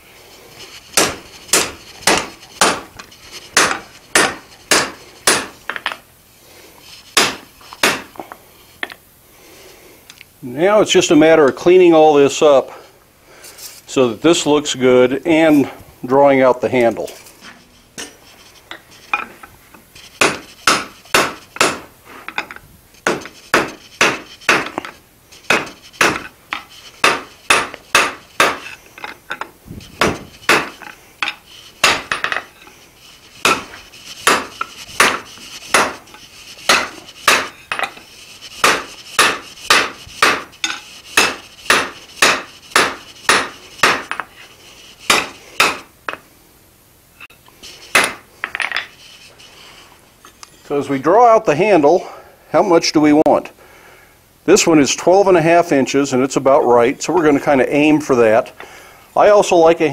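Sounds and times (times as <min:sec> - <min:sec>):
hammer striking steel on anvil: 0:01.0 - 0:02.9, 0:03.6 - 0:06.0, 0:07.2 - 0:08.1, 0:20.2 - 0:21.9, 0:27.0 - 0:28.7, 0:30.0 - 0:32.5, 0:33.4 - 0:36.0, 0:36.7 - 0:38.0, 0:38.6 - 0:44.3, 0:45.1 - 0:45.9.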